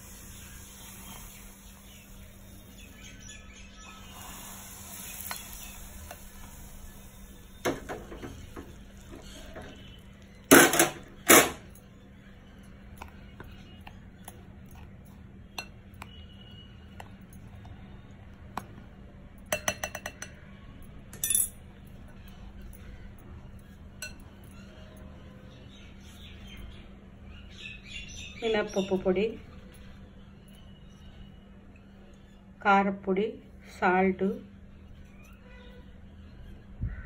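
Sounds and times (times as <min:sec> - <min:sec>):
spoon knocking on bowl: 0:19.5 - 0:20.4.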